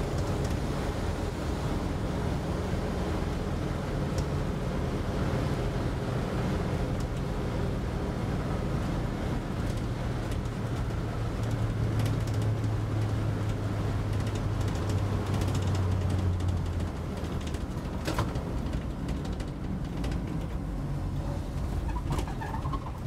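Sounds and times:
road and wind noise: 0.0 - 23.0
faint rattles: 14.1 - 23.0.

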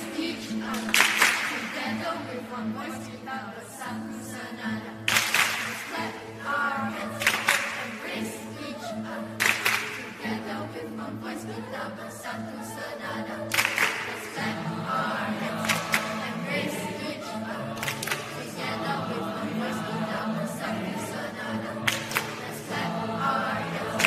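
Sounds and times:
mixed choir singing: 0.0 - 24.0
sharp claps: 0.7 - 1.8, 5.1 - 6.0, 7.2 - 8.0, 9.4 - 10.1, 13.5 - 14.4, 15.6 - 16.4, 17.8 - 18.5, 21.9 - 22.6.

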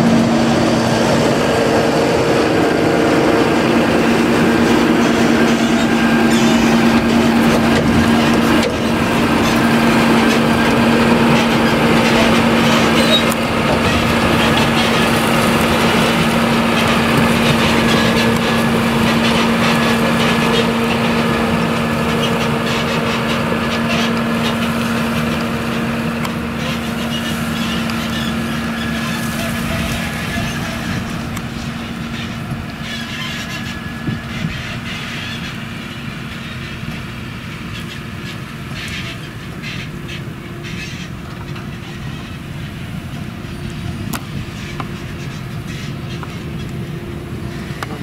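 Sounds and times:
harvester and tractor engines droning: 0.0 - 48.0.

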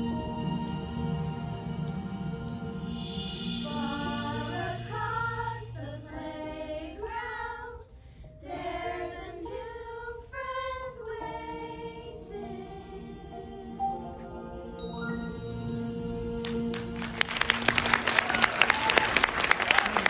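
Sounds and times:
girls singing together: 3.6 - 14.3.

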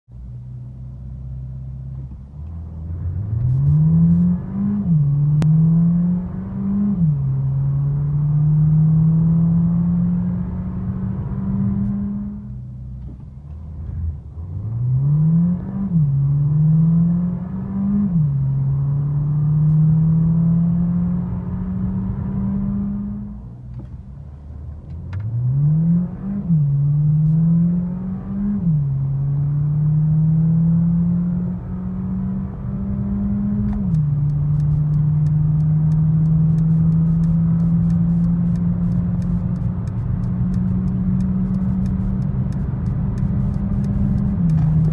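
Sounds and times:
car engine accelerating: 0.1 - 44.9.

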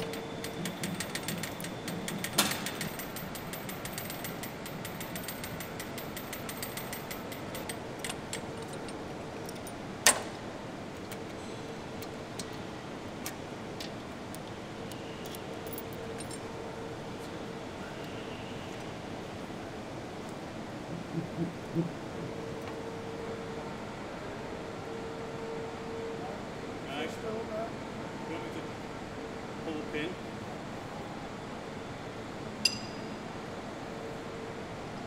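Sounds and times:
metal hook clicks and clanks: 0.0 - 10.2
faint steady hum: 0.0 - 35.0.

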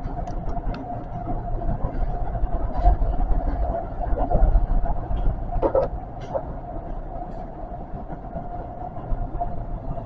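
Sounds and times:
electric train rumbling on track: 0.0 - 10.0
train humming tone: 0.0 - 10.0.

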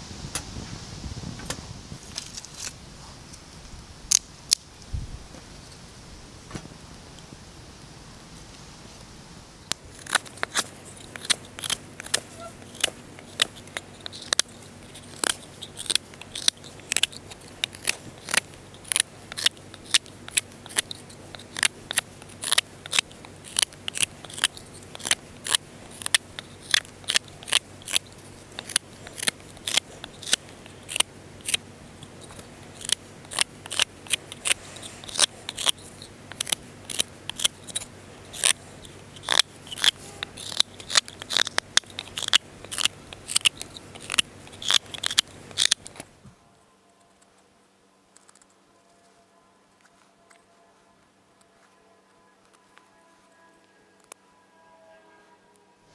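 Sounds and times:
knife carving wood: 9.7 - 46.1.

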